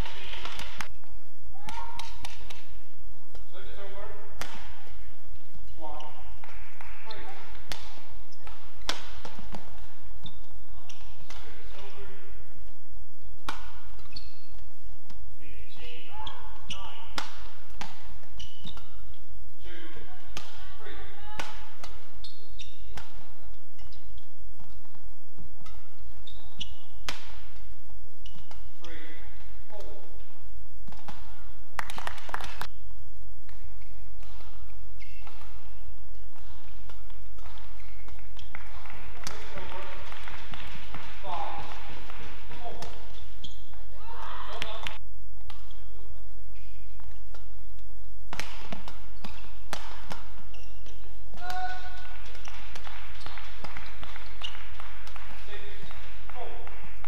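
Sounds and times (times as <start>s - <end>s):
rackets striking shuttlecock: 0.0s - 15.3s, 15.9s - 57.0s
shoes squeaking on court: 4.4s - 12.1s, 13.2s - 19.3s, 21.6s - 30.0s, 33.5s - 47.8s, 48.4s - 57.0s.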